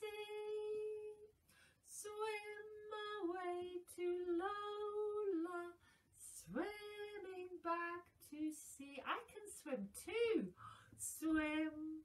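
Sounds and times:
woman singing unaccompanied: 0.0 - 1.3, 1.9 - 12.0.

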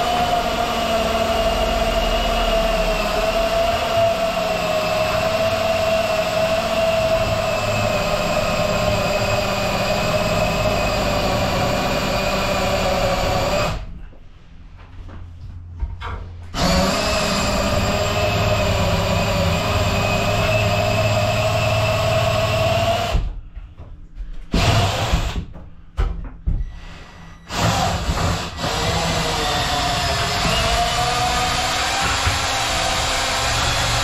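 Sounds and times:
electric power tool motor: 16.6 - 23.2.

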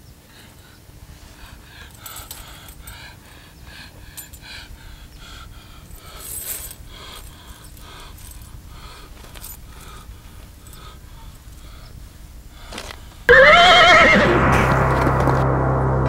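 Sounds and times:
coins jingling in a cloth bag: 1.5 - 3.2, 4.1 - 4.5, 5.4 - 11.6.

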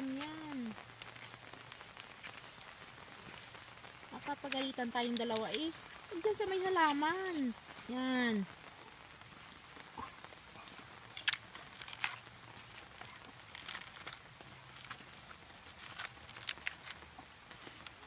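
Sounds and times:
dog tearing coconut husk: 11.2 - 17.0.

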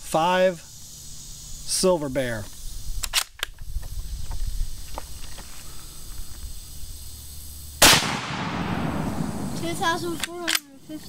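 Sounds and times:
sharp clicks: 2.4 - 4.0, 8.1 - 10.8
rifle shot with echo: 7.8 - 10.6.

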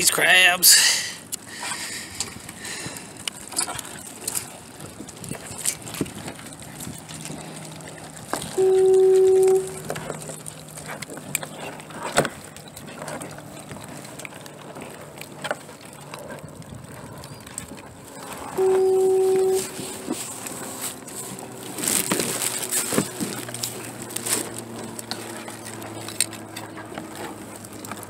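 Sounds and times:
loud electronic beep: 8.6 - 9.8, 18.6 - 19.7.

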